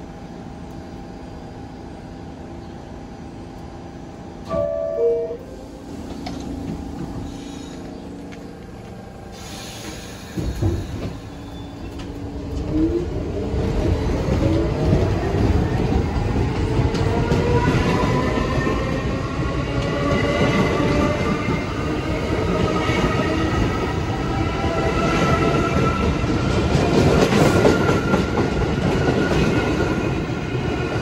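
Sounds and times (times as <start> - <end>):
subway train motor whine: 0.0 - 31.0
two-note falling chime: 4.5 - 5.6.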